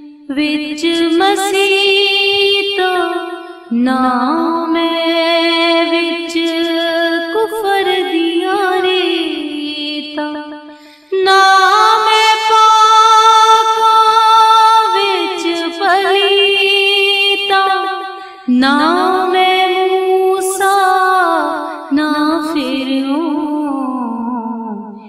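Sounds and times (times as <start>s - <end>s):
woman singing: 0.0s - 25.0s.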